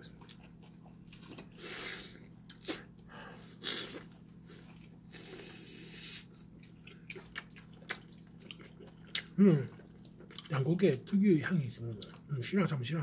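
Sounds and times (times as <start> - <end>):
faint low hum: 0.0 - 13.0
person chewing: 0.1 - 10.7, 11.9 - 12.3
breathy hiss: 1.6 - 6.3.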